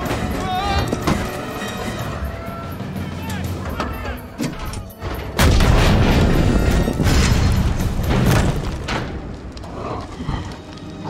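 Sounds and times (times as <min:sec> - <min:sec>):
film score music: 0:00.0 - 0:11.0
loud explosion boom: 0:05.4 - 0:08.8
long rumbling crash: 0:05.4 - 0:09.4.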